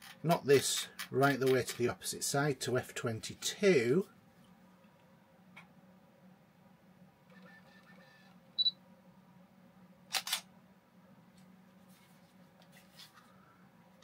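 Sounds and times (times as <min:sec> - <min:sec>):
camera focus beep: 0:07.3 - 0:08.8
camera shutter double click: 0:10.1 - 0:10.5.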